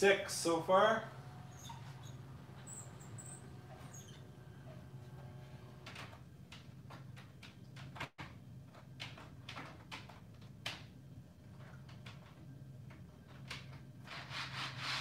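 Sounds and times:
steady low hum: 0.0 - 9.5.

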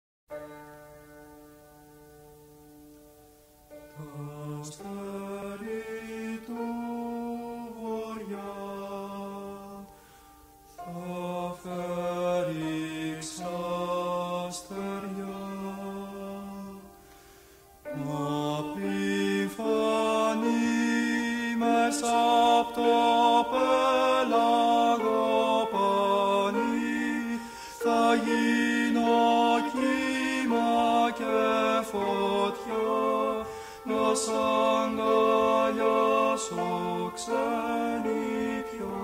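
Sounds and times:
man singing chant-like melody: 3.9 - 9.9, 10.8 - 17.0, 17.9 - 39.0.

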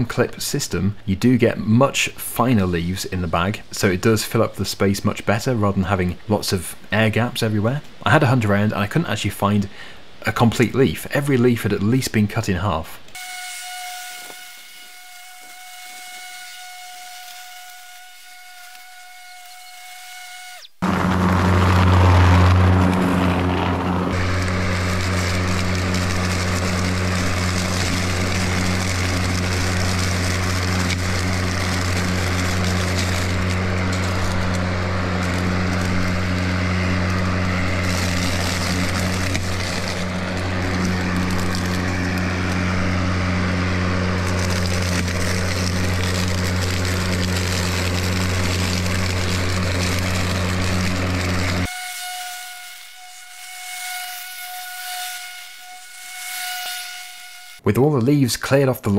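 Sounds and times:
lawnmower running over leaves: 20.8 - 57.6.

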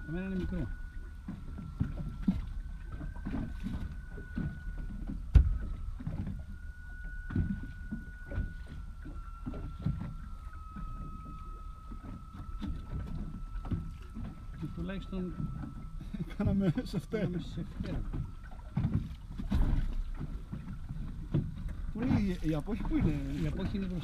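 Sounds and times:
faint high whine: 0.0 - 24.0
water lapping against boat hull: 0.0 - 24.0.

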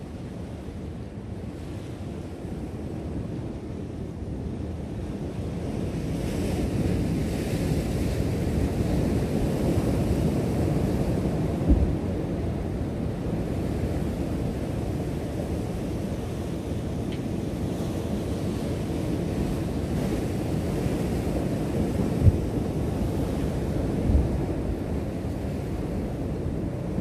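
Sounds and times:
ocean surf washing against rocks: 5.9 - 27.0
wind buffeting microphone: 6.6 - 27.0
low thump: 11.7 - 11.9.

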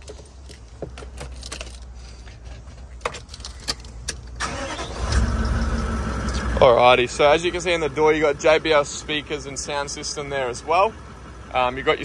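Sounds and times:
diesel engine idling: 4.2 - 12.0
starter motor cranking: 4.4 - 6.5.

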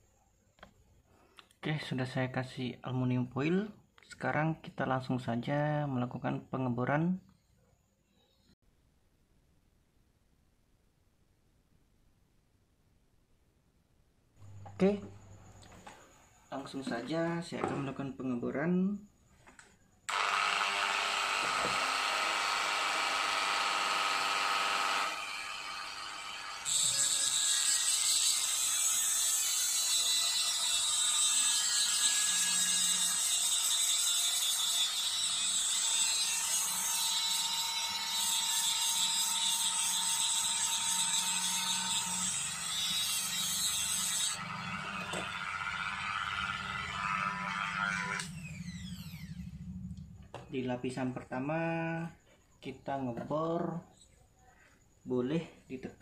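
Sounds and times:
electric rotary drill running: 20.1 - 27.3, 43.4 - 49.6
harsh high grinding: 20.1 - 50.3.

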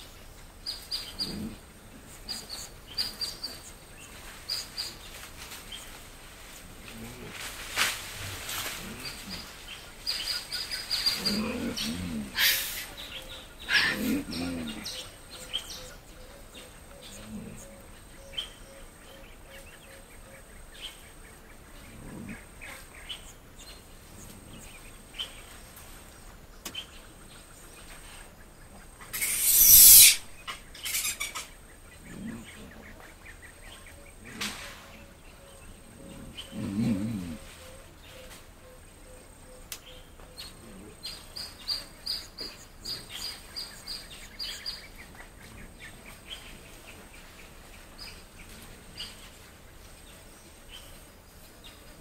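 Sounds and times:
birds chirping and calling: 0.0 - 6.0, 8.5 - 52.0
mandrills grunting: 11.0 - 12.9, 13.7 - 15.1, 35.9 - 37.5.

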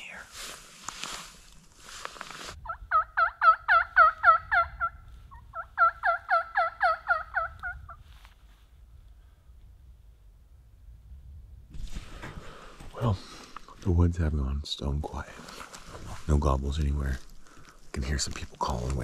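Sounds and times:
turkey yelps: 2.6 - 7.9.

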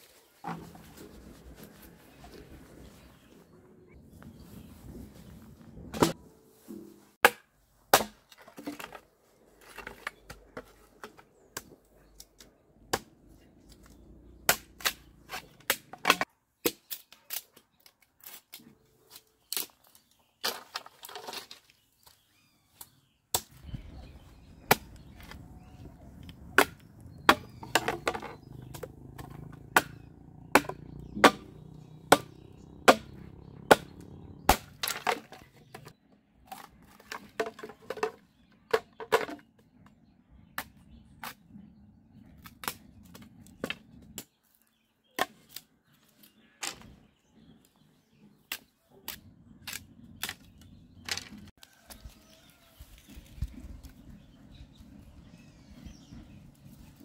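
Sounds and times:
machete chopping bamboo: 7.2 - 8.4, 14.4 - 17.4, 24.7 - 25.4, 26.6 - 35.9.

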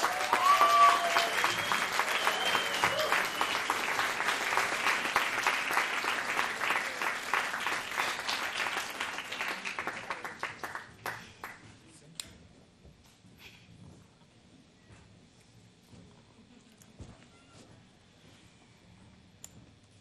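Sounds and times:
audience applauding: 0.0 - 11.6.

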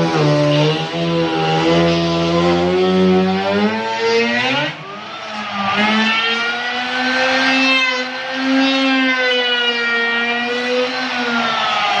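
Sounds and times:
router whining cutting wood: 0.0 - 12.0.

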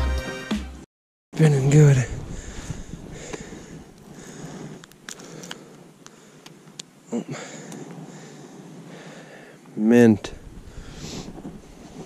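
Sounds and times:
faint steady hiss: 1.4 - 12.0
breathy noise: 2.2 - 9.7
light rustling: 10.3 - 12.0.

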